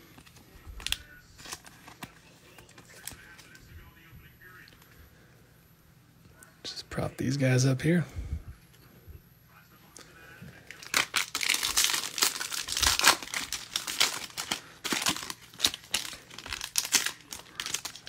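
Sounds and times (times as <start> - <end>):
foil wrapper crinkling and tearing: 0.0 - 3.6, 10.6 - 18.0.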